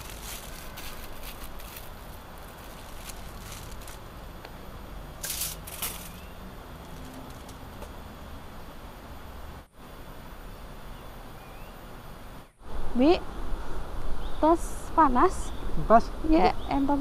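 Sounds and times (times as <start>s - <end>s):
short rustles: 0.0s - 4.0s, 5.2s - 6.2s
outdoor background noise: 0.0s - 17.0s.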